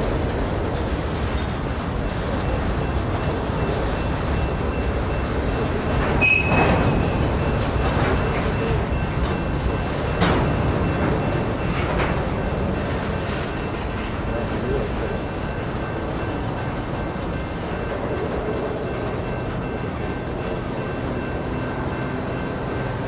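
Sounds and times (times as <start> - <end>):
train wheels rumbling on rail: 0.0 - 23.0
high wheel squeal: 6.2 - 7.3.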